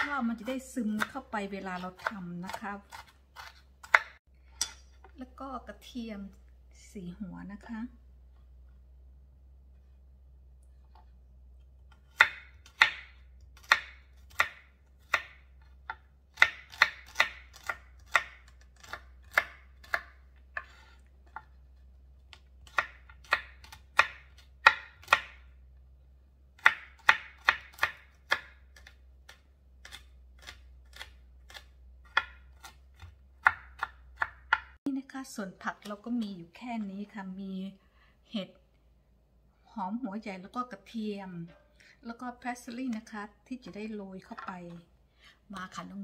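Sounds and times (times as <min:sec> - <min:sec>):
knife chopping on wooden board: 0:02.0 - 0:05.1, 0:11.9 - 0:21.6, 0:22.3 - 0:25.4, 0:26.6 - 0:34.8.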